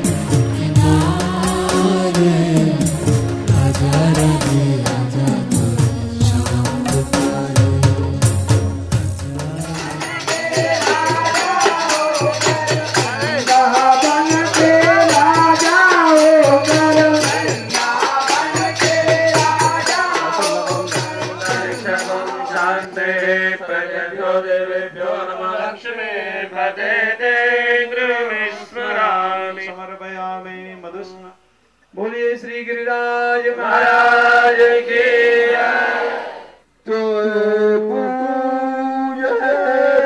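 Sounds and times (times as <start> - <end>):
rattling percussion: 0.0 - 23.7
devotional chanting with music: 0.0 - 40.0.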